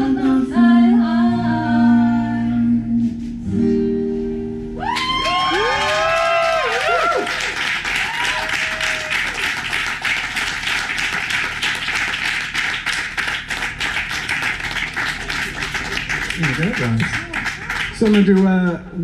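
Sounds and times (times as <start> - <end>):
whoops and cheers: 4.8 - 9.7
crowd clapping: 4.8 - 19.0.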